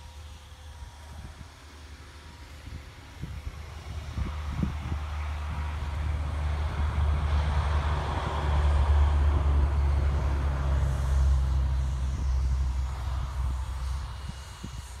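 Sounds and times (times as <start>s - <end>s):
steady low traffic rumble: 0.0s - 15.0s
vehicle passing by: 3.6s - 15.0s.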